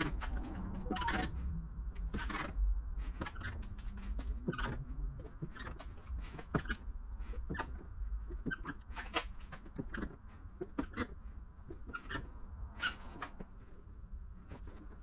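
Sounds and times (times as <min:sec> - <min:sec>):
squeegee squeaks and clicks: 0:02.1 - 0:13.6.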